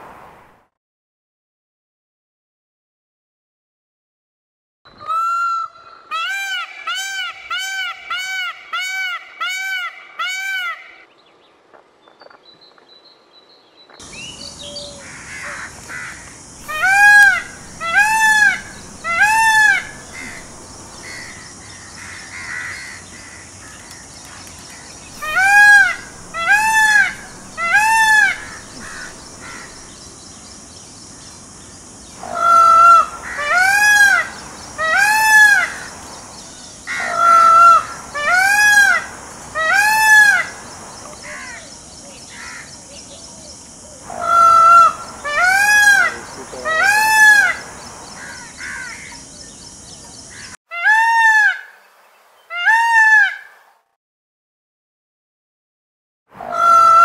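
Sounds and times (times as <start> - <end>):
peacock calling loudly: 5.0 - 11.1, 14.4 - 30.0, 32.2 - 36.0, 36.9 - 40.6, 44.0 - 49.2, 50.3 - 51.8, 52.5 - 53.6, 56.4 - 57.0.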